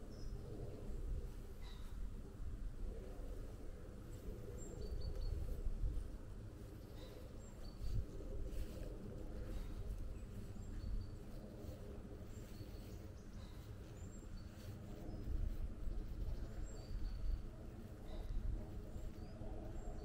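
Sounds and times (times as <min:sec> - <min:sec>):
steady low rumble: 0:00.0 - 0:20.0
birds chirping: 0:04.0 - 0:20.0.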